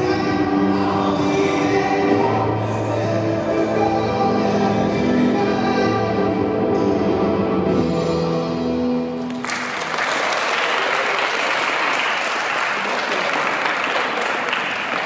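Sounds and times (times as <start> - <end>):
audience applauding: 9.2 - 15.0.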